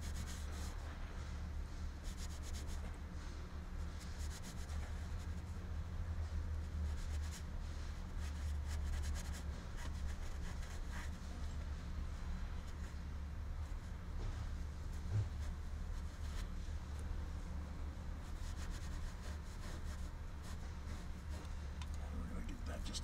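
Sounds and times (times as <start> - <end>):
steady low hum: 0.0 - 23.0
fingers rubbing fabric: 4.0 - 5.5, 6.8 - 11.5, 18.1 - 21.8.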